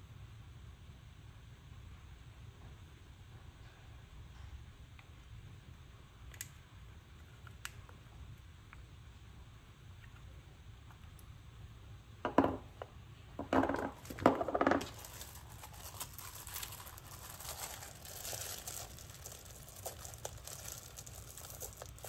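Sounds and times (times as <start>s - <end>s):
tape rolls knocking on desk: 12.2s - 12.8s, 13.4s - 15.1s
plastic packaging crinkling: 13.6s - 22.0s.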